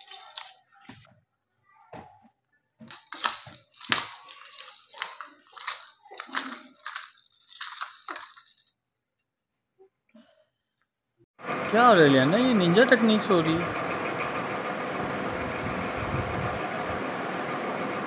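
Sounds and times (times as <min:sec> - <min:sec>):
plastic baby rattle shaking: 0:00.0 - 0:00.7, 0:02.9 - 0:08.8.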